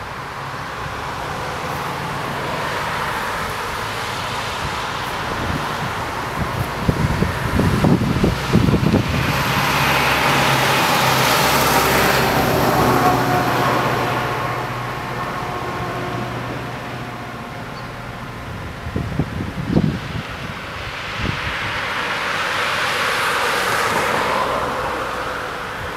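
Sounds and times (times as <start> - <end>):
vehicle passing by: 0.0 - 25.9
wind buffeting microphone: 2.9 - 22.9.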